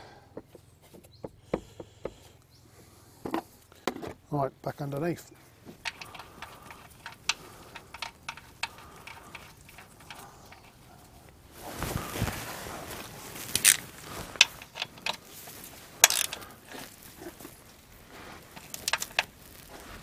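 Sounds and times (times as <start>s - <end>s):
metal scraping: 5.7s - 11.3s
ratchet wrench clicking: 5.9s - 10.8s, 16.0s - 16.4s.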